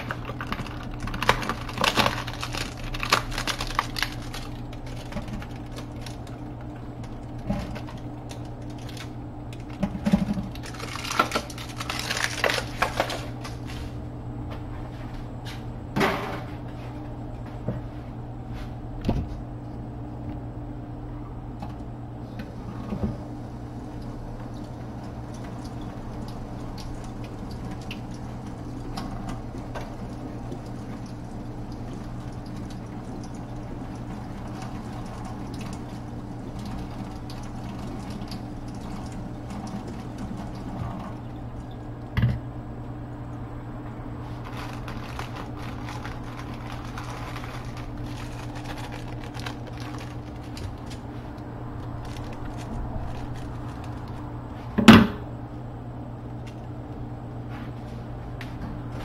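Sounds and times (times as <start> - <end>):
clatter of food preparation: 0.0 - 13.9, 44.2 - 51.3
kitchen low hum: 0.0 - 59.0.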